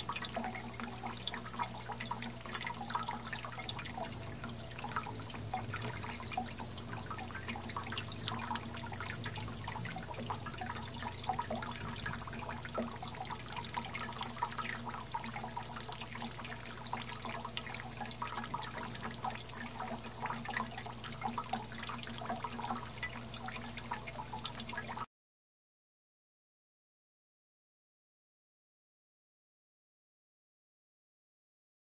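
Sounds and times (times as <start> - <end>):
steady low hum: 0.0 - 22.8
fountain water trickling: 0.0 - 25.1.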